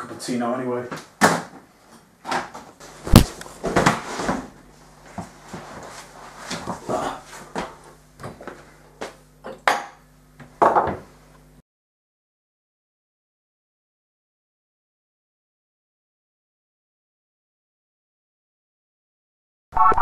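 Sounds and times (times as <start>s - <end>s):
faint steady hum: 0.0s - 11.6s.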